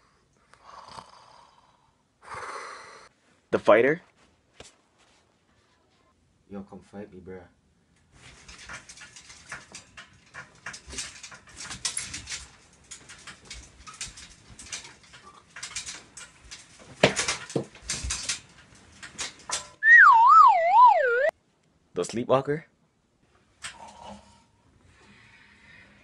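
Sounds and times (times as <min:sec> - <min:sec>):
bedding rustling: 0:08.1 - 0:19.6
wailing siren sound effect: 0:19.8 - 0:21.3.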